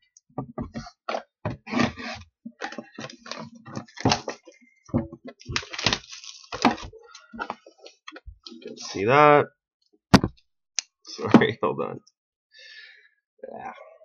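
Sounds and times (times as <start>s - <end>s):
box being handled: 0.4s - 8.9s
plastic wrap crinkling and ripping: 2.6s - 4.6s, 5.4s - 8.0s.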